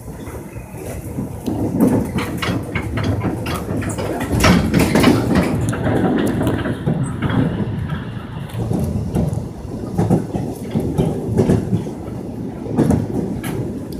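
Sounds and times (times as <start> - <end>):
electric train rumbling on rails: 0.0 - 13.9
wheels clacking: 0.0 - 13.9.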